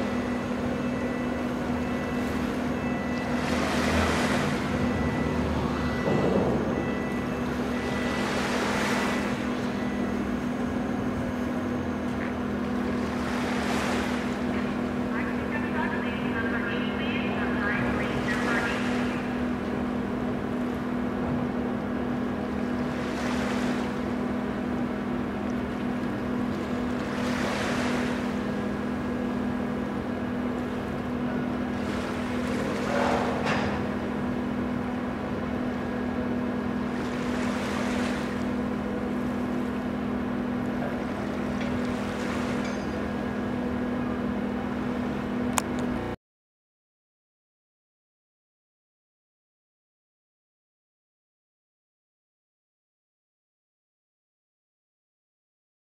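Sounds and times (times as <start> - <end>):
ferry engines humming: 0.0 - 46.2
small waves washing on shore: 1.4 - 10.1, 12.4 - 15.5, 17.5 - 21.5, 22.2 - 43.4.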